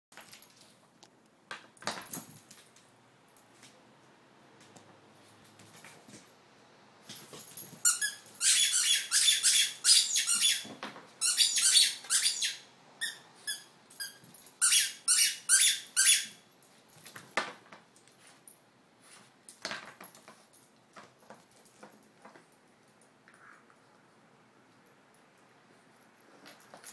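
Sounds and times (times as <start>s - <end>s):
squeaky ball squeaking: 7.8s - 16.4s.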